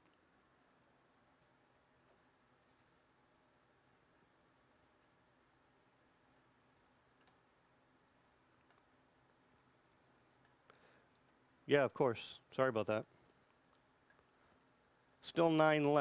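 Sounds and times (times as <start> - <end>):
small sharp clicks: 3.8 - 4.1, 4.7 - 5.0, 6.3 - 7.4, 9.8 - 11.3, 13.2 - 14.2.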